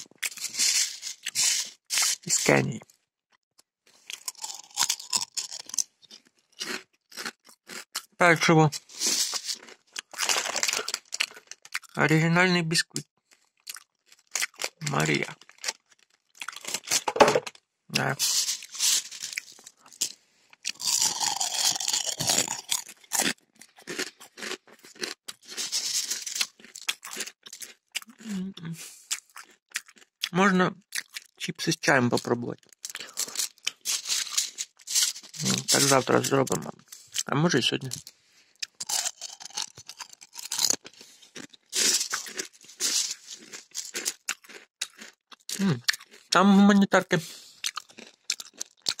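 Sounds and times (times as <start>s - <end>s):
cornflakes crunching in glass bowl: 0.0s - 2.6s, 4.0s - 7.9s, 8.7s - 11.9s, 13.8s - 17.1s, 18.0s - 28.3s, 32.7s - 36.6s, 37.8s - 46.3s, 47.7s - 49.0s.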